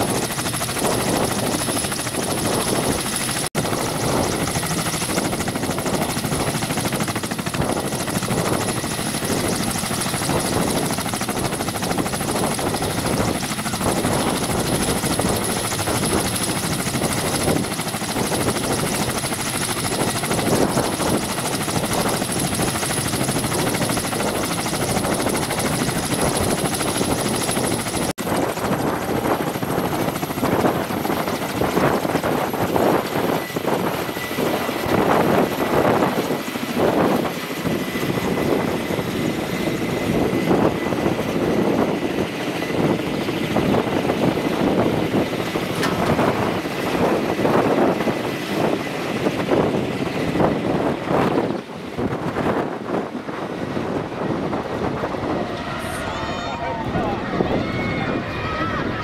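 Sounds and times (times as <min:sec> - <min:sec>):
helicopter rotors chopping: 0:00.0 - 0:59.0
helicopter turbine whine: 0:00.0 - 0:59.0.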